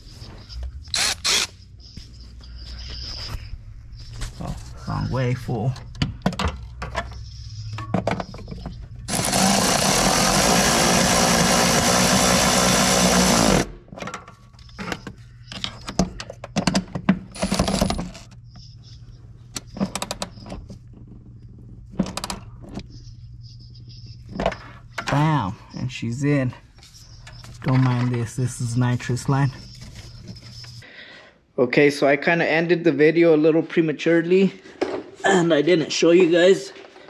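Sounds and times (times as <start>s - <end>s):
cordless ratchet running: 9.1s - 13.7s.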